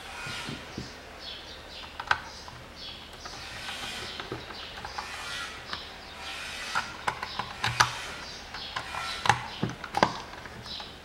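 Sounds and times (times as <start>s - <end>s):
hard plastic clicks and knocks: 6.8s - 11.0s.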